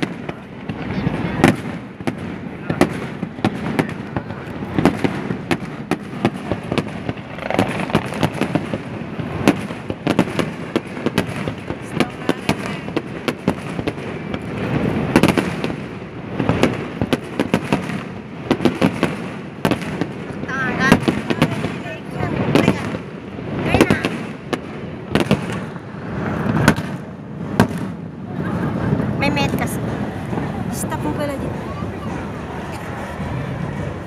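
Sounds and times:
fireworks shells bursting: 1.4 - 23.1.

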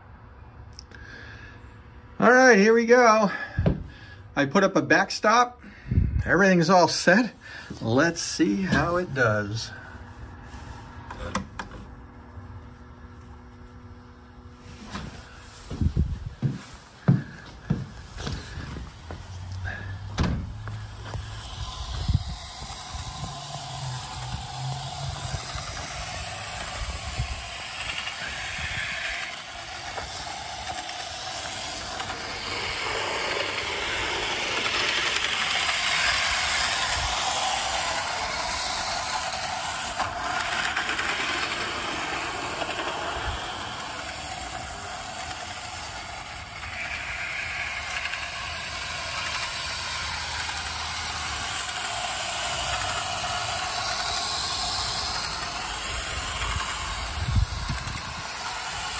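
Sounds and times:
model train wheels rattling on rails: 6.6 - 10.0, 17.6 - 58.9.

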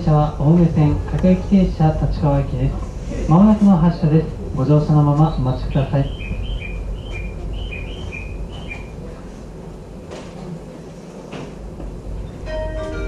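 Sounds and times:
electric train hum: 0.0 - 13.0.

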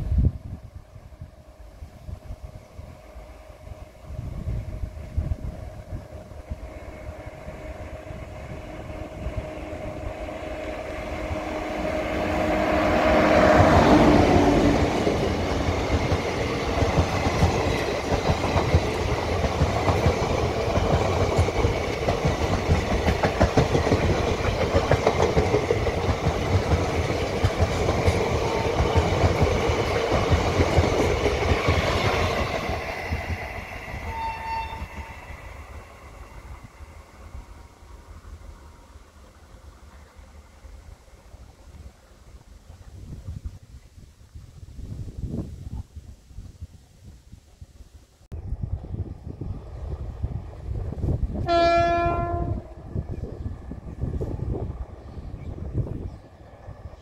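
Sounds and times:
electric locomotive passing: 0.0 - 45.4, 48.3 - 57.0
train horn: 5.8 - 15.0, 34.0 - 35.6, 51.4 - 53.0.

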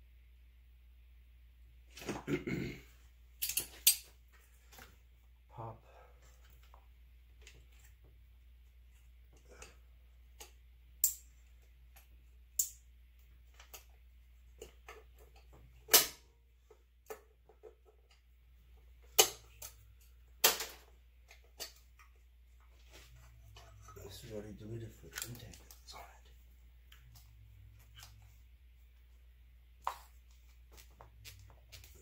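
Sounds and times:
faint low hum: 0.0 - 32.0
clicks and knocks of hands working: 3.4 - 4.2, 9.2 - 18.3, 19.0 - 22.2, 29.8 - 32.0.

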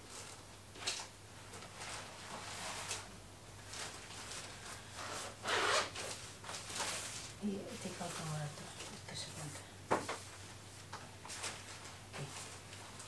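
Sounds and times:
bags rustling: 0.0 - 9.0.

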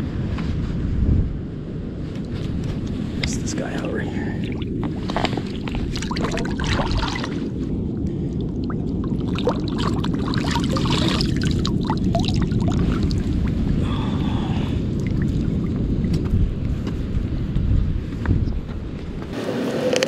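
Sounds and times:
steady low rumble: 0.0 - 19.4
water splashing and trickling: 3.2 - 16.3
fish being rinsed by hand: 4.5 - 7.5, 9.0 - 13.4.

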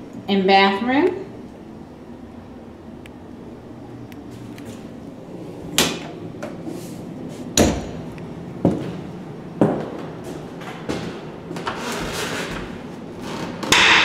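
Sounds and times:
footsteps on hardwood floor: 8.6 - 13.4.

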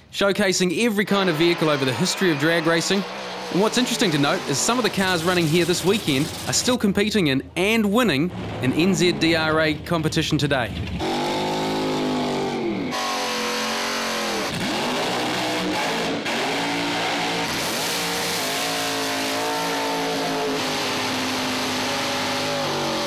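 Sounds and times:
drag car engines revving: 0.9 - 6.8, 10.7 - 23.0
tyre burnout hiss: 1.2 - 6.7.

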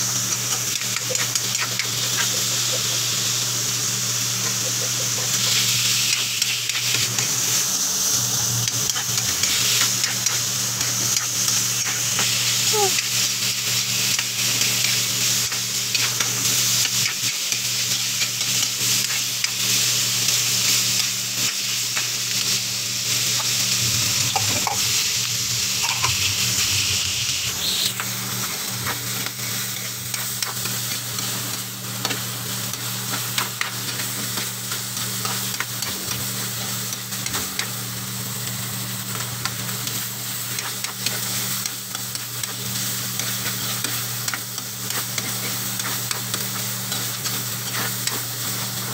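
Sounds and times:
meat sizzling in a wok: 0.0 - 48.9
steady low hum: 21.6 - 30.0.

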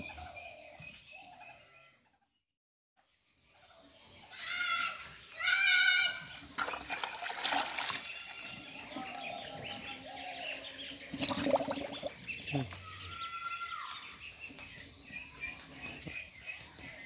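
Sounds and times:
bleat-like animal calls: 4.4 - 6.2, 12.6 - 14.0
cow slurping and crunching feed: 6.4 - 9.9, 11.1 - 12.3.

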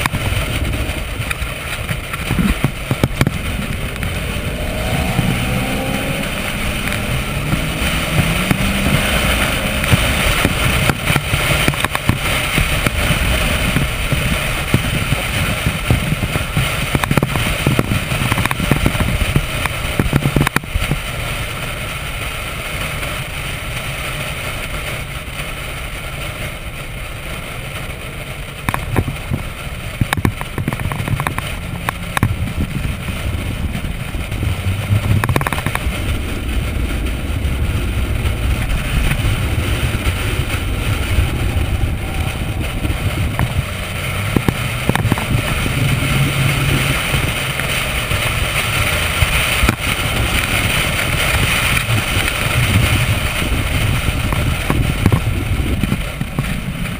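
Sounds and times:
car engine running: 0.0 - 56.9
wind and road noise: 0.0 - 56.9.

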